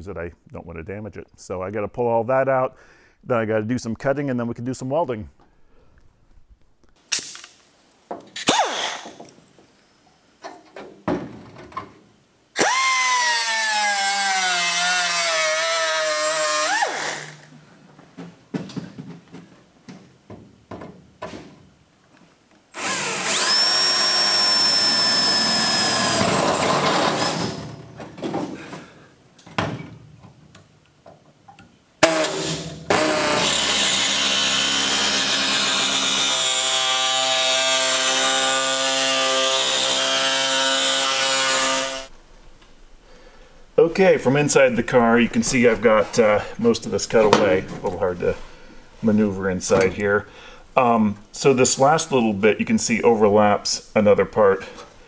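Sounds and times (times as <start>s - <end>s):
pneumatic air tool running: 8.4s - 9.2s, 14.8s - 17.5s, 22.8s - 27.7s, 32.0s - 36.6s
cordless drill whining into metal: 12.6s - 17.5s, 22.8s - 27.8s
tool handling knocks and clicks: 17.5s - 21.8s.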